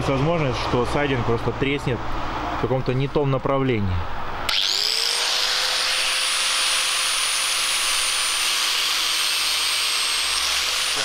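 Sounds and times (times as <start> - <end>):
angle grinder cutting with high whine: 4.4 - 11.0.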